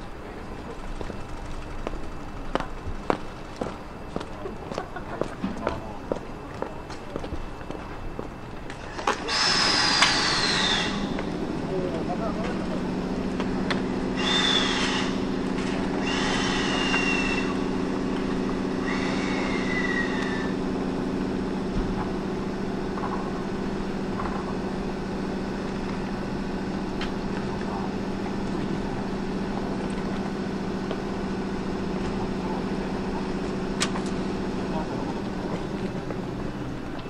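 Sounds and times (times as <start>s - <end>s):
electric locomotive humming: 0.0s - 37.0s
high-pitched metal squeals: 9.2s - 11.2s.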